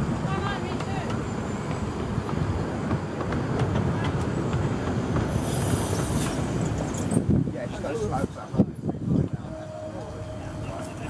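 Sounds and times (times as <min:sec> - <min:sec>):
train wheels rumbling on track: 0:00.0 - 0:11.0
steam hiss: 0:05.1 - 0:07.1.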